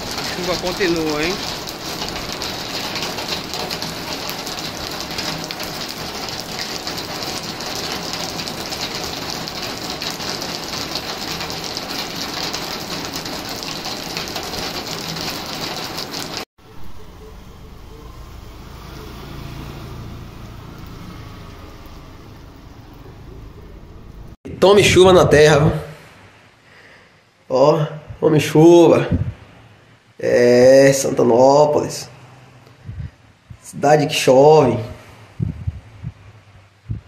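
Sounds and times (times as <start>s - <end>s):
heavy rain on roofs: 0.0s - 24.4s
rain on a wet road: 0.0s - 24.4s
motorcycle passing: 16.7s - 24.4s.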